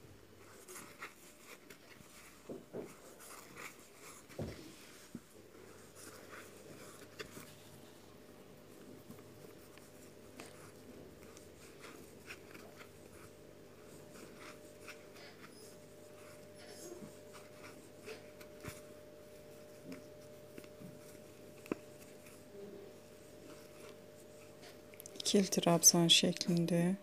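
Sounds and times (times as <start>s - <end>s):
steady low hum: 0.0s - 27.0s
crochet hook scratching yarn: 0.4s - 7.7s, 8.8s - 26.6s.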